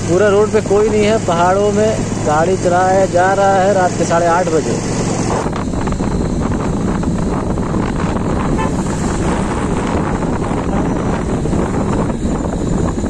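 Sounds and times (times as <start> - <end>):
motorcycle engine running: 0.0 - 13.0
wind buffeting microphone: 4.8 - 13.0.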